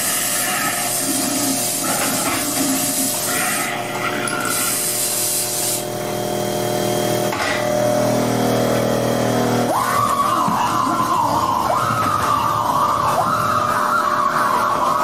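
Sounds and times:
hiss of air: 0:00.0 - 0:03.8, 0:04.4 - 0:05.9
droning hum: 0:00.0 - 0:15.0.

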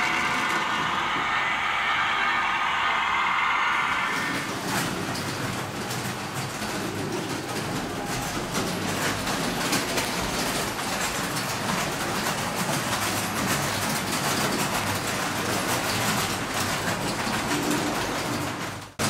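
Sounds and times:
model trains rolling on track: 0:00.0 - 0:19.0
wheels clicking over rail joints: 0:04.7 - 0:19.0.

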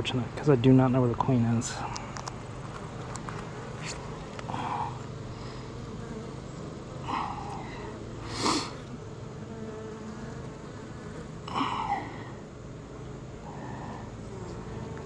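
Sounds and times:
honeybees buzzing: 0:00.0 - 0:15.0
single bee buzzing close past: 0:02.5 - 0:15.0.

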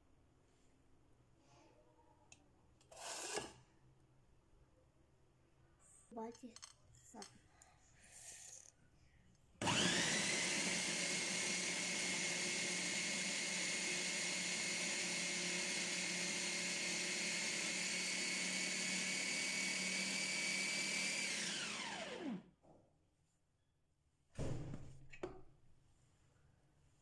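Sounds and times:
food processor motor running: 0:02.9 - 0:03.5, 0:09.6 - 0:22.5.

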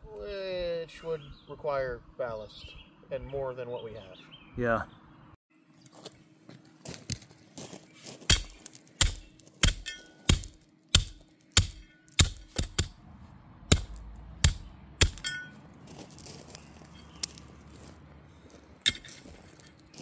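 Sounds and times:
sharp metallic strikes: 0:08.3 - 0:13.0, 0:13.7 - 0:15.6.

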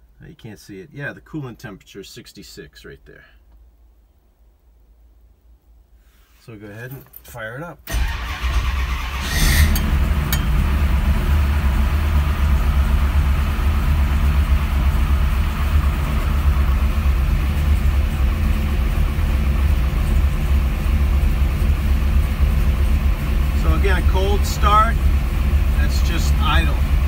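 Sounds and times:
car engine idling: 0:07.9 - 0:27.0.

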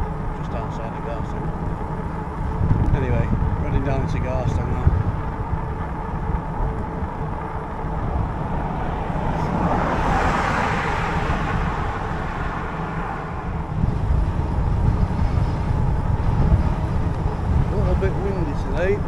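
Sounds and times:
wind and road noise rumble: 0:00.0 - 0:19.0
car passing close by: 0:07.9 - 0:14.8.

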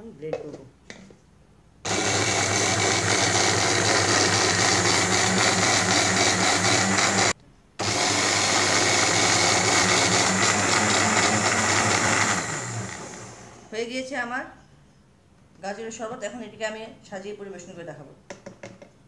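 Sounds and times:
electric blender running: 0:01.9 - 0:13.7.

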